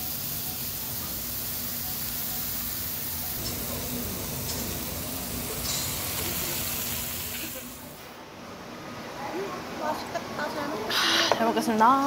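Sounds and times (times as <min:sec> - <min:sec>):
meat sizzling on a grill plate: 0:00.0 - 0:08.0
faint steady hum: 0:01.8 - 0:08.5.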